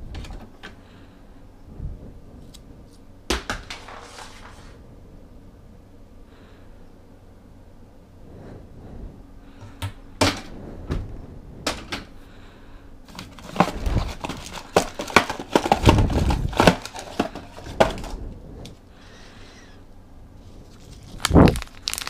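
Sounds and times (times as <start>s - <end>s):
items clattering and rustling: 0.0s - 0.9s, 3.3s - 4.8s, 9.6s - 12.2s, 13.1s - 18.8s.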